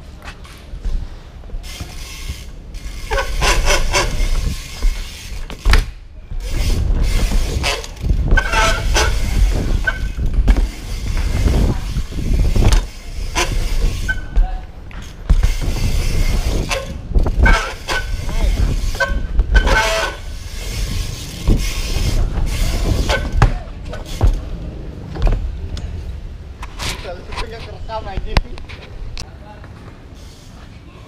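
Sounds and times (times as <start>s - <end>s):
bike tyres rumbling on ramps: 0.0s - 29.2s
bike knocks landing: 3.1s - 6.0s, 12.5s - 20.1s, 21.4s - 24.5s
wind buffeting microphone: 6.3s - 23.5s
short squeaks: 13.3s - 14.4s.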